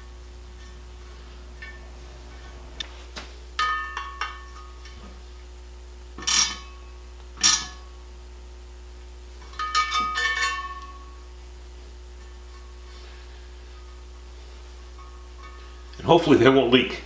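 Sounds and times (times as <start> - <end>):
metal tools clinking on a wheel rim: 0.6 - 2.8, 9.4 - 11.0.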